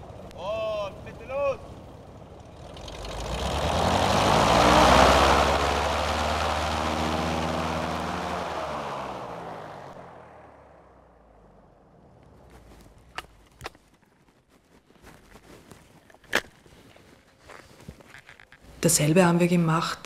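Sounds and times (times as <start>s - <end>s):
propeller hum: 0.0s - 12.4s.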